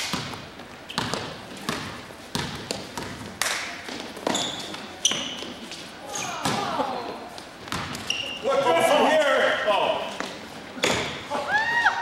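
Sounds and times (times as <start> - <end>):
sneaker squeaks: 0.0 - 6.7, 7.7 - 8.7
basketball bouncing on wood floor: 0.1 - 3.3, 6.4 - 6.7, 7.6 - 8.1.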